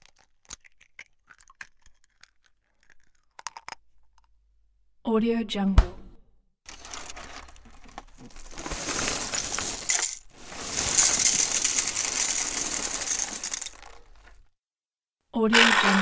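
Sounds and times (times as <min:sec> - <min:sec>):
small hard objects clattering: 0:06.7 - 0:14.5.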